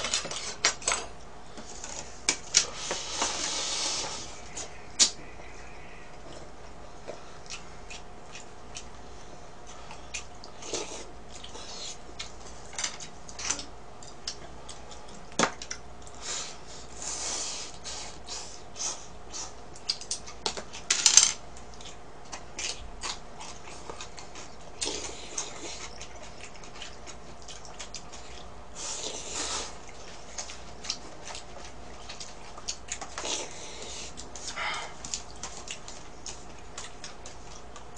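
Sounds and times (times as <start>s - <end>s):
chewing: 6.2s - 16.4s, 21.6s - 37.9s.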